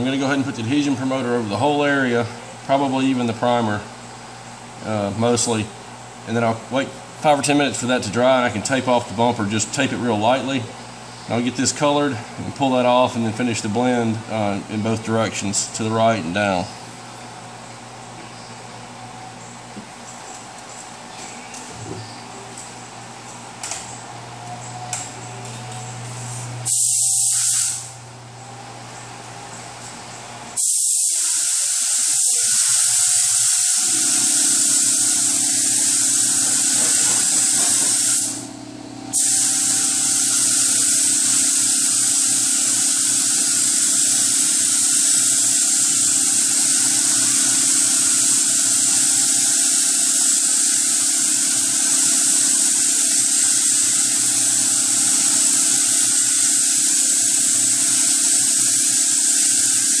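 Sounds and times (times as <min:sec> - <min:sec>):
steady hum: 0:00.0 - 1:00.0
spray gun hissing: 0:26.2 - 0:28.0, 0:30.6 - 1:00.0.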